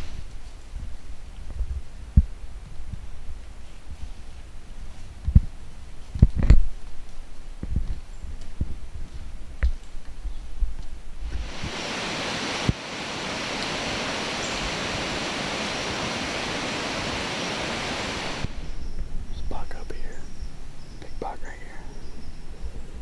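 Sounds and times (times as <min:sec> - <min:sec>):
steady even hiss: 0:11.2 - 0:22.9.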